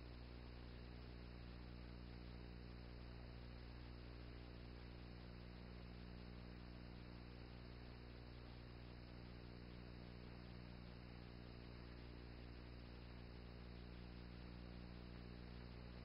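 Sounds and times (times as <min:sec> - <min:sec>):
low hum with faint hiss: 0:00.0 - 0:16.0.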